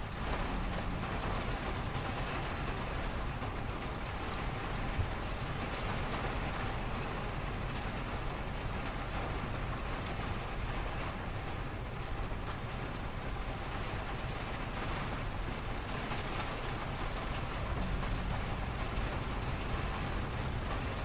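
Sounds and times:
freeway traffic rumble: 0:00.0 - 0:21.0
rain on window glass: 0:00.0 - 0:21.0.

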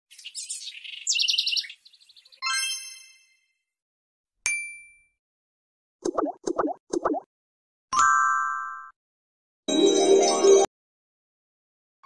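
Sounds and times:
rapid high bird-like chirps: 0:00.1 - 0:02.4
sharp metallic ding: 0:04.5 - 0:05.2.

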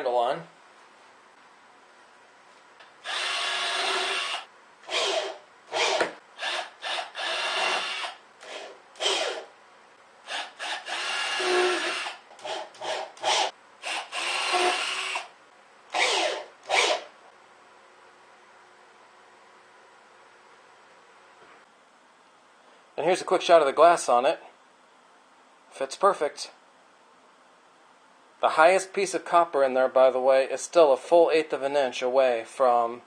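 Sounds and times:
power drill driving screws: 0:03.0 - 0:09.5, 0:10.3 - 0:15.3, 0:15.9 - 0:17.1.

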